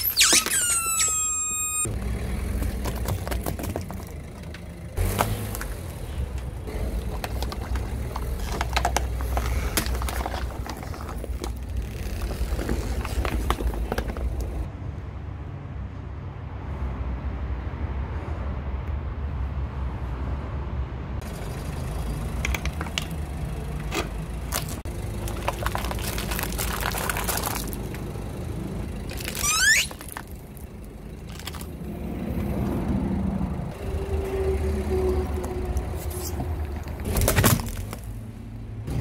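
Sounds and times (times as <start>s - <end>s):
rising squeal: 0.0s - 2.0s, 29.2s - 30.0s
objects crunching under tyre: 0.0s - 14.7s, 23.8s - 28.4s, 29.0s - 31.8s, 35.4s - 38.4s
car engine running: 21.2s - 31.9s.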